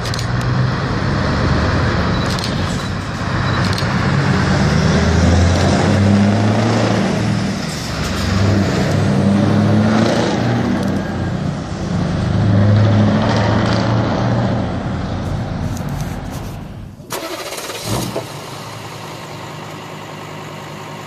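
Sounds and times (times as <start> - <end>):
diesel truck engine accelerating: 0.0 - 21.0.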